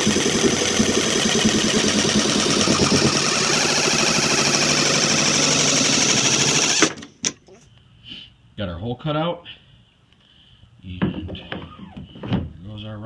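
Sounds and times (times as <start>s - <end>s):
jigsaw cutting plastic: 0.0s - 7.2s.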